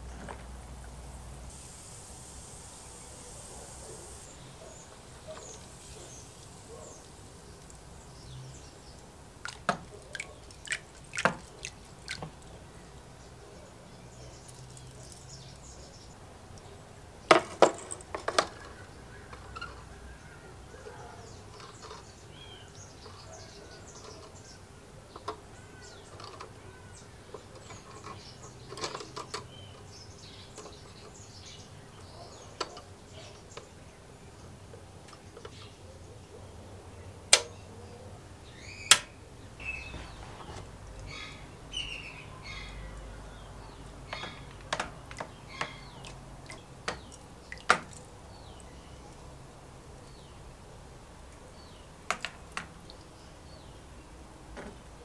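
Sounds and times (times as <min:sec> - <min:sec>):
liquid dripping: 0:02.5 - 0:13.1, 0:14.3 - 0:16.8.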